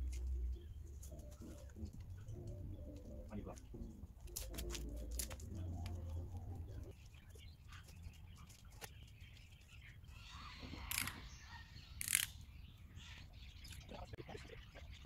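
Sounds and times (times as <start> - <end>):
dove cooing: 0.0 - 6.9.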